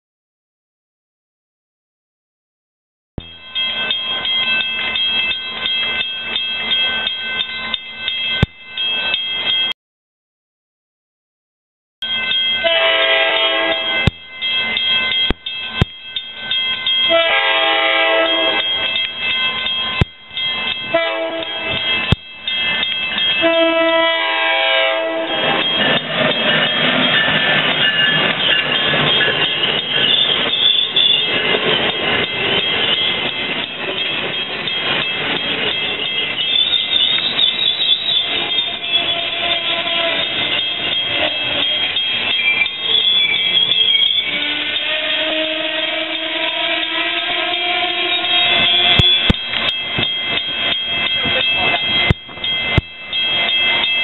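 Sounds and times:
train passing at speed: 12.1 - 54.0
train horn: 12.6 - 14.1, 17.1 - 18.6, 20.9 - 21.9, 23.4 - 25.5, 38.8 - 40.3, 44.3 - 48.3.

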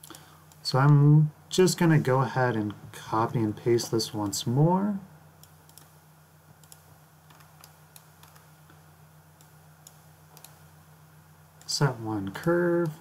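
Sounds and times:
mouse and keyboard clicks: 5.4 - 5.9, 6.6 - 8.5, 9.4 - 10.6.

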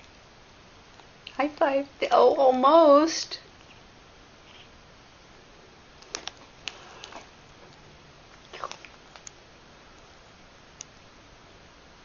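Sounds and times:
faint sharp clicks and scuffles: 6.0 - 10.1.

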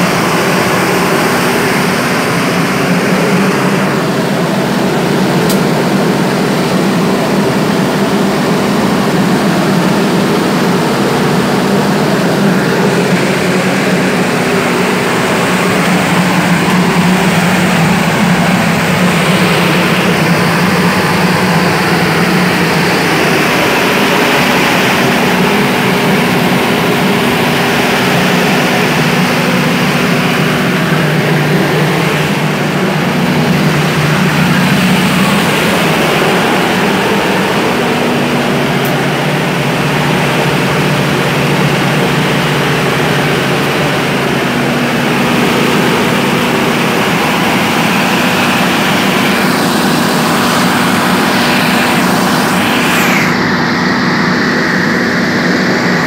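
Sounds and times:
diesel generator running: 0.0 - 56.0.

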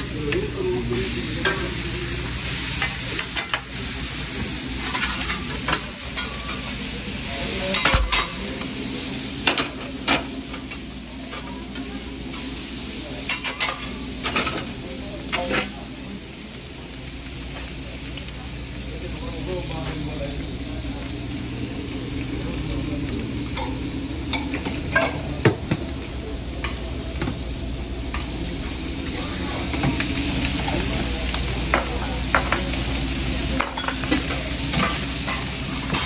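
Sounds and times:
bacon sizzling on griddle: 0.0 - 36.0.

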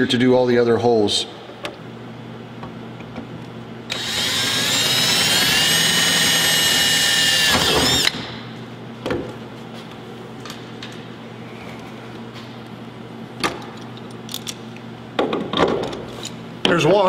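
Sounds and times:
power drill drilling metal: 3.9 - 8.2.

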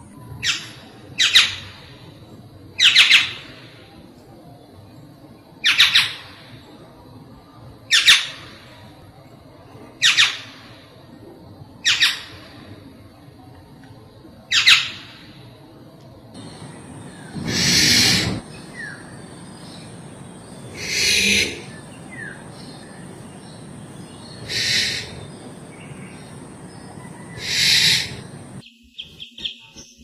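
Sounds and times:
bird squawking calls: 16.4 - 19.2, 20.7 - 22.4, 24.2 - 25.5, 27.0 - 28.6.

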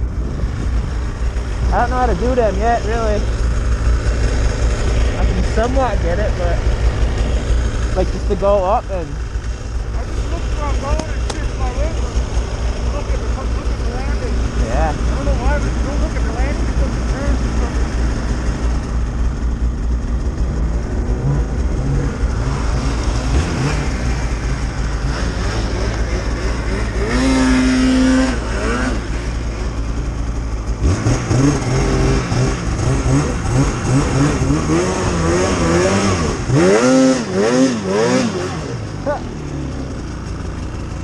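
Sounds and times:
snowmobile engine revving: 0.0 - 41.0.

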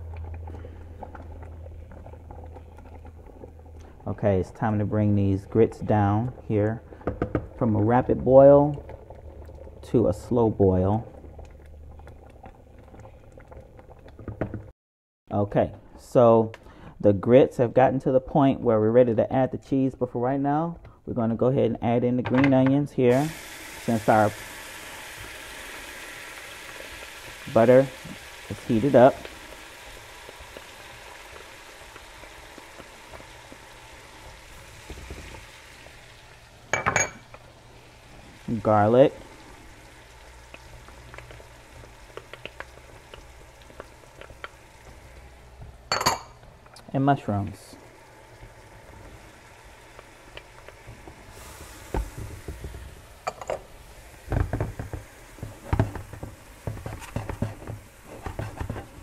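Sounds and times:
butter sizzling in a skillet: 23.1 - 45.9, 47.7 - 59.0
spoon scraping a pan: 56.6 - 59.0.

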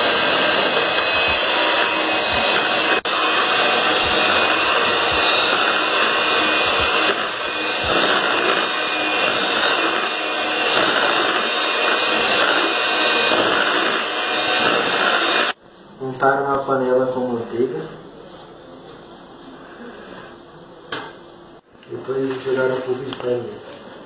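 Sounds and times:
electric hand mixer whisking batter: 0.0 - 15.6.

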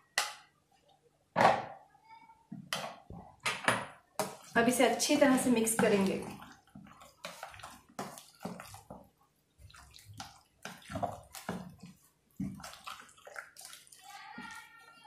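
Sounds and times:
meat squelching in marinade: 4.2 - 15.0.

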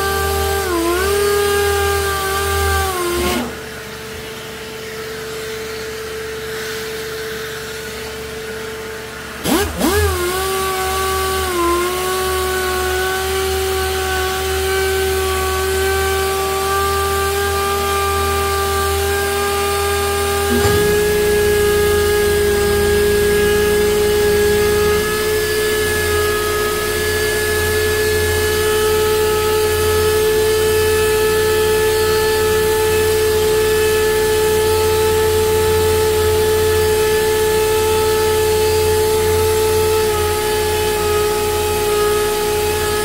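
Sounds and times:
orbital sander whining: 18.8 - 29.6.

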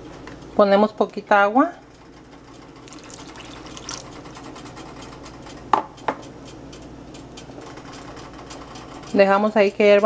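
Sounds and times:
water poured into hot pan: 2.8 - 4.4
food sizzling and bubbling: 2.8 - 4.6.

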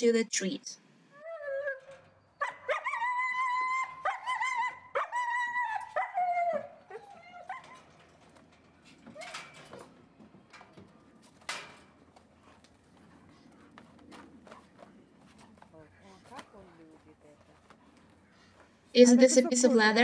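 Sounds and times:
puppy whining: 1.2 - 7.9.

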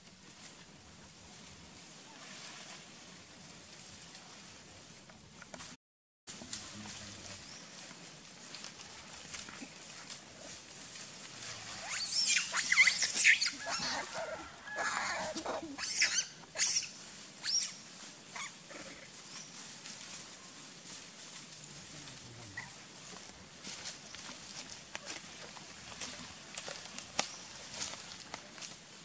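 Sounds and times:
monkey squealing calls: 11.8 - 17.8.

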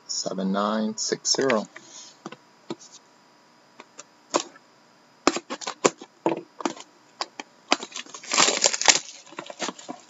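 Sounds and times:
blade slitting plastic wrap: 7.7 - 10.0
cellophane crinkling and tearing: 7.7 - 10.0.

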